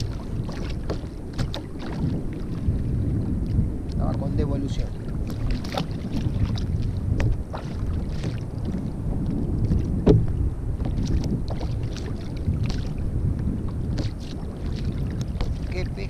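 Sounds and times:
wind rumbling on microphone: 0.0s - 16.0s
loud knock: 10.0s - 10.3s.

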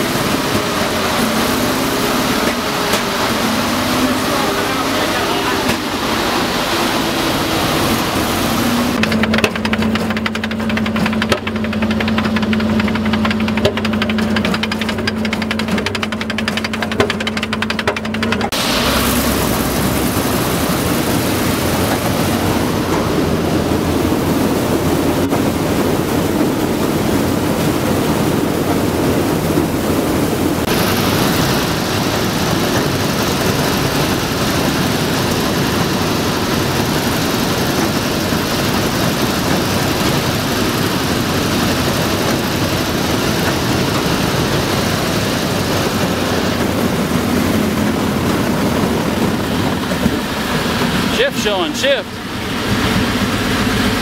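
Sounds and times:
vehicle engine running loudly: 0.0s - 54.0s
bright hiss: 18.6s - 22.2s.

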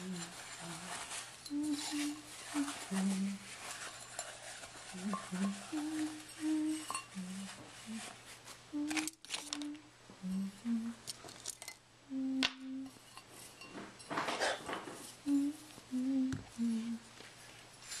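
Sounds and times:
person humming: 0.0s - 3.5s, 4.9s - 11.1s, 12.0s - 13.0s, 15.2s - 17.2s
clinks of tea things: 3.8s - 7.4s, 12.9s - 14.7s.

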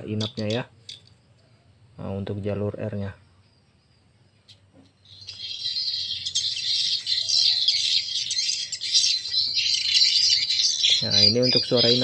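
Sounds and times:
recorded swiftlet twittering: 4.9s - 12.0s.

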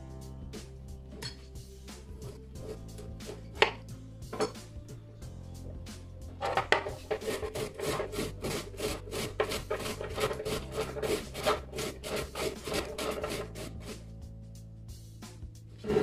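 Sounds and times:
cauliflower grating on metal grater: 6.4s - 14.0s.

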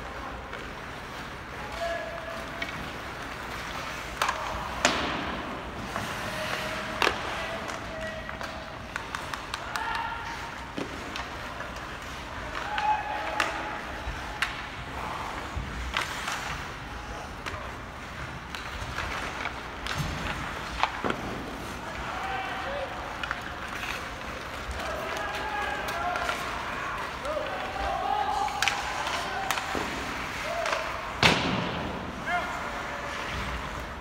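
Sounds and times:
hockey sticks and puck clacking: 0.0s - 34.0s
skates scraping on ice: 0.0s - 34.0s
distant shouts: 12.5s - 14.1s.

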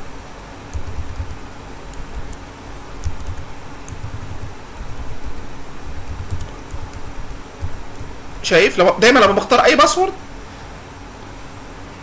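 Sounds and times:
room noise rumble and hiss: 0.0s - 12.0s
computer keys clicking: 0.7s - 8.4s.

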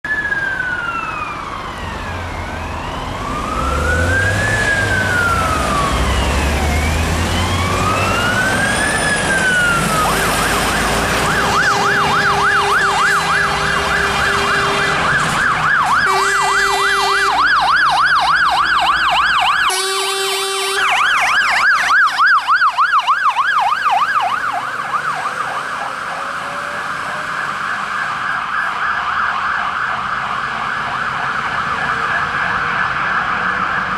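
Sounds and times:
fire engine sirens: 0.0s - 33.9s
heavy vehicle engine rumbling: 1.8s - 28.2s
horn blasts: 10.5s - 15.3s, 15.9s - 17.6s, 19.6s - 21.2s.

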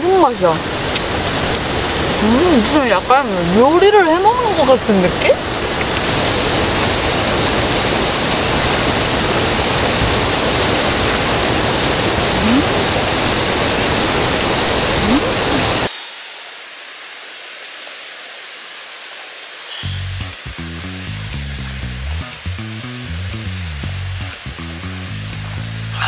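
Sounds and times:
stream rushing: 0.0s - 15.9s.

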